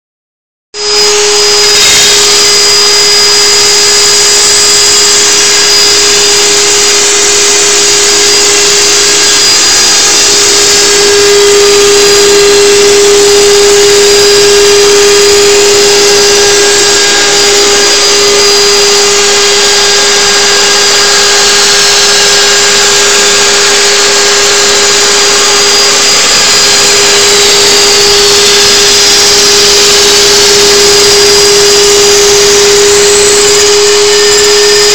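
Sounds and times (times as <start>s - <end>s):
shop vacuum running: 0.7s - 34.9s
router whining: 0.8s - 34.9s.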